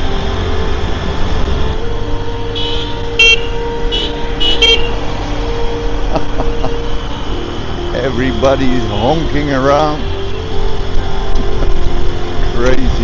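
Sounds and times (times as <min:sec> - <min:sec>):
engine and road noise rumble: 0:00.0 - 0:13.0
vehicle horns honking: 0:02.4 - 0:05.2.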